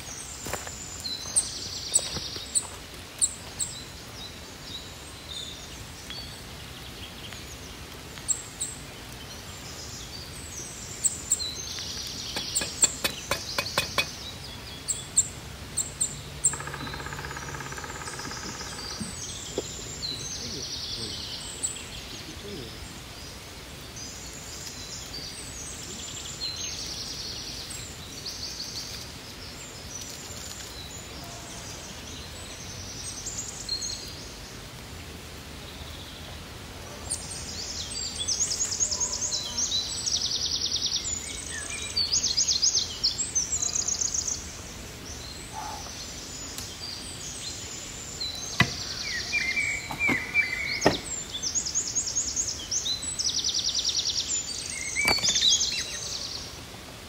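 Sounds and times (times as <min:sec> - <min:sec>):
songbirds chirping and trilling: 0:00.0 - 0:57.0
sharp knocks: 0:12.3 - 0:14.2, 0:48.6 - 0:48.8, 0:49.9 - 0:51.1.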